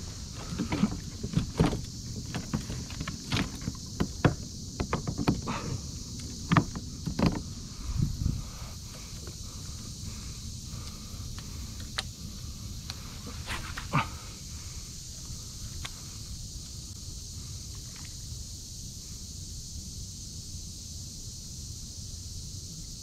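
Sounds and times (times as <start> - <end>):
steady high hiss: 0.0 - 23.0.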